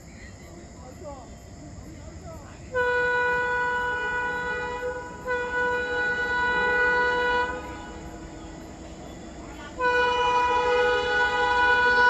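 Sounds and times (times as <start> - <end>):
train noise: 0.0 - 12.0
locomotive horn blasts: 2.8 - 8.2, 9.5 - 12.0.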